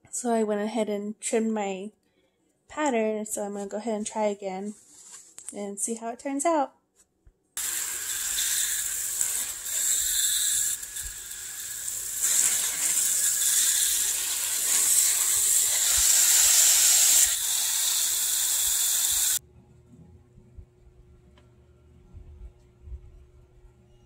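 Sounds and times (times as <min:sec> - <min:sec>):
water spraying from a hose: 0:07.6 - 0:19.4
faint low hum: 0:19.4 - 0:24.0.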